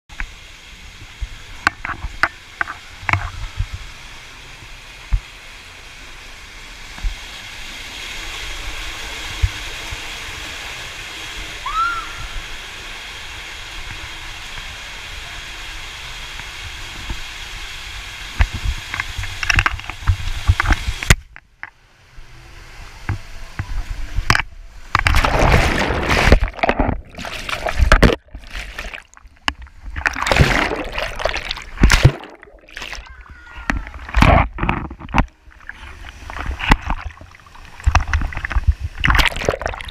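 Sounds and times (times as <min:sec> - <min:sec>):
water rushing through slide tube: 0:00.2 - 0:21.2, 0:22.0 - 0:39.9
water splashing: 0:24.2 - 0:39.9.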